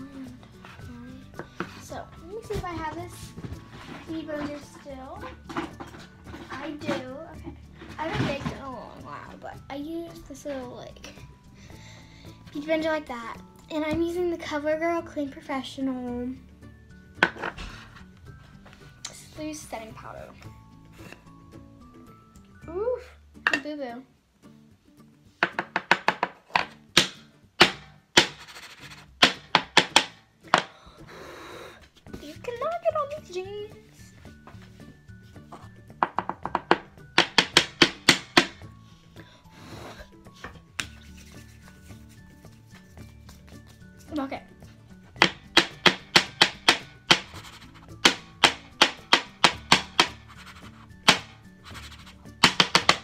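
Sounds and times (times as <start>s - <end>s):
faint background music: 0.0s - 53.0s
taps and knocks on jar: 36.0s - 38.6s
sharp taps on powder container: 45.2s - 53.0s.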